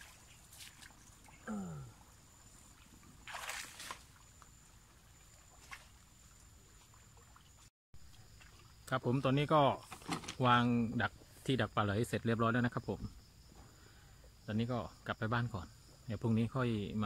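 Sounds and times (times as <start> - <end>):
wet mud sloshing: 0.0 - 2.0, 2.6 - 4.4.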